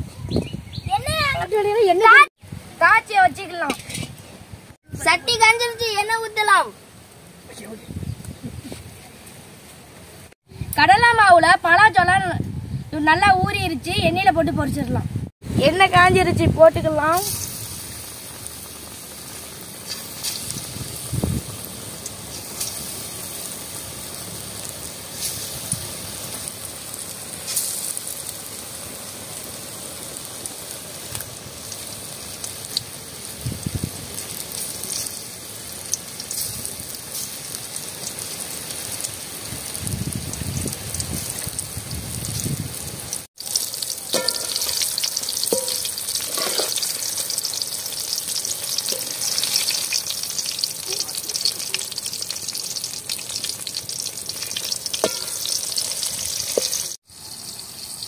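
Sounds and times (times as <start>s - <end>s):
deep-frying sizzle with pops: 2.4s - 11.2s, 15.6s - 58.0s
slotted spoon stirring: 45.5s - 46.9s.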